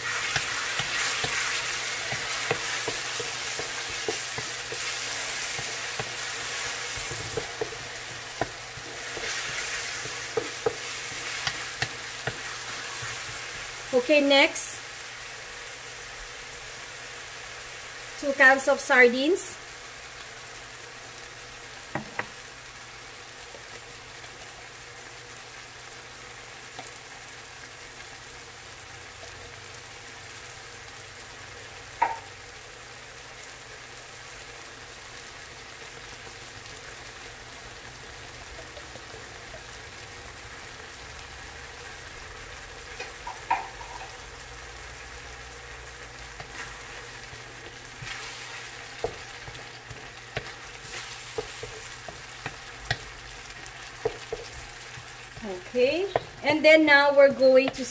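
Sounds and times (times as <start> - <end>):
food sizzling in a pan: 0.0 - 57.9.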